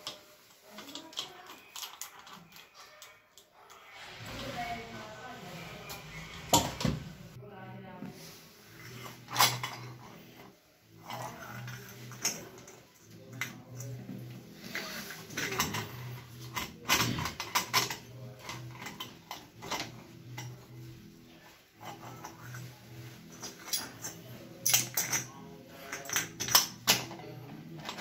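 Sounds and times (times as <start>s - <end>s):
wrench clinking on metal: 23.3s - 28.0s.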